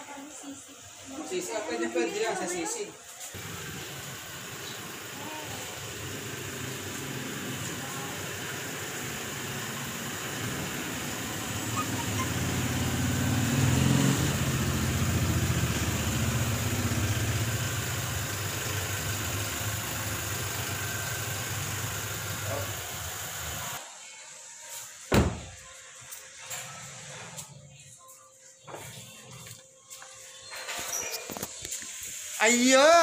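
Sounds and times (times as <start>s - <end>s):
car engine running at low speed: 3.4s - 23.8s
car door shutting: 25.1s - 25.6s.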